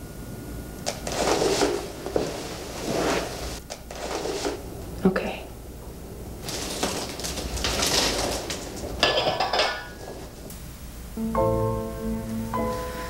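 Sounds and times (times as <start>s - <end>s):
rustling: 0.9s - 5.0s, 5.9s - 10.6s.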